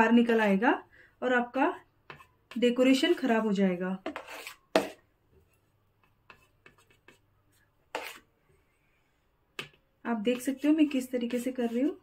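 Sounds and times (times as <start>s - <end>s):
metal knife scraping steel bowl: 2.1s - 5.0s, 7.9s - 8.3s, 10.2s - 12.0s.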